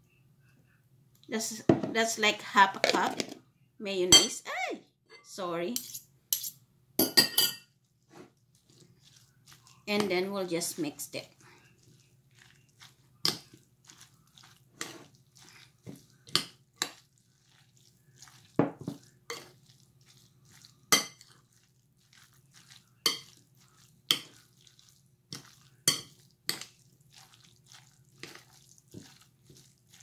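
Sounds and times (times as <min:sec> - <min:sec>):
fork clinking on glass bowl: 0:05.8 - 0:07.7, 0:19.3 - 0:19.5, 0:23.0 - 0:23.4, 0:25.4 - 0:26.7.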